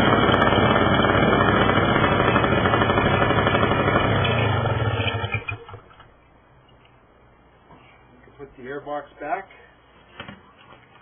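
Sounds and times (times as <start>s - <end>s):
paramotor engine running: 0.0s - 5.8s.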